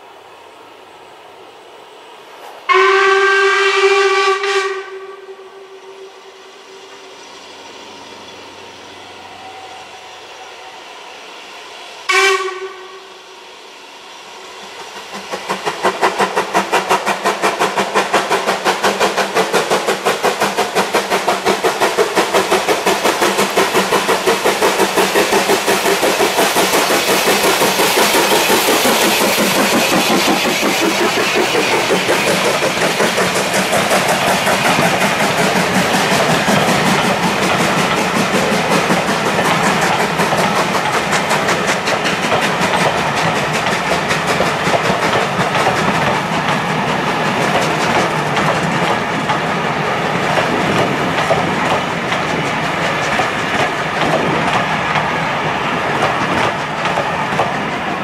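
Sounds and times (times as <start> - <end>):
steam locomotive exhaust beats: 2.3 - 58.0
steam locomotive whistle: 2.7 - 7.0, 12.0 - 13.6.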